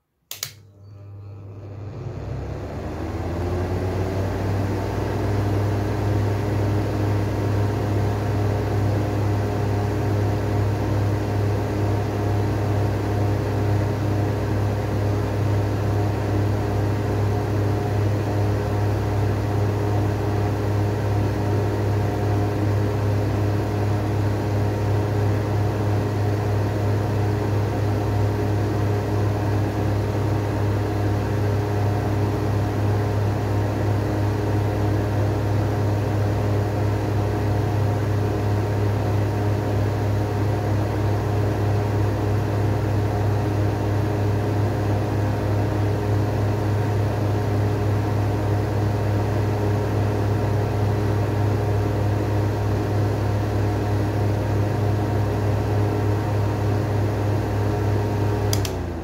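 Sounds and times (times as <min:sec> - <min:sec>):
switch click: 0:00.3 - 0:00.6, 0:58.5 - 0:58.9
exhaust fans whining and humming: 0:00.3 - 0:59.0.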